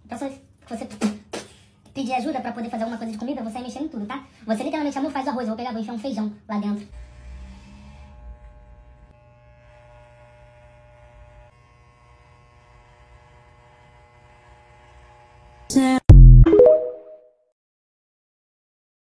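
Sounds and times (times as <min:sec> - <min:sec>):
electric hair clipper buzzing: 0:06.9 - 0:15.7
app end-screen sound: 0:16.1 - 0:17.3.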